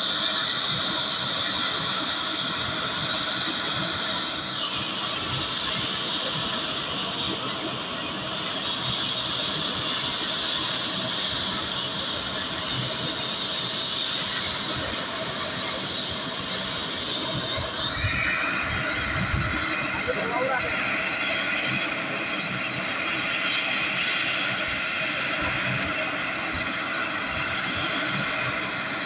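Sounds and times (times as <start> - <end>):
helicopter rotor rush: 0.0 - 29.0
helicopter turbine whine: 0.0 - 29.0.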